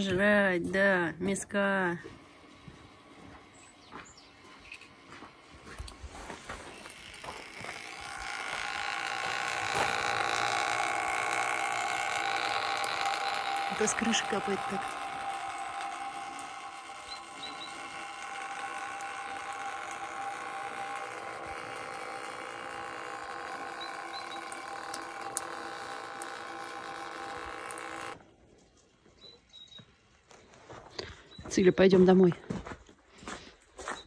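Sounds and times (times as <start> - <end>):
water dripping off roof: 6.8 - 29.2.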